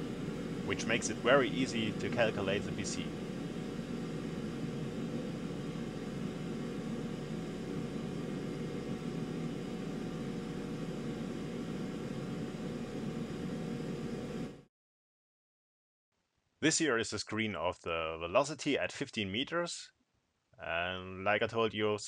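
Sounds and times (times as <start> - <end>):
faint steady tone: 0.0 - 14.6
machine hum: 0.0 - 14.7.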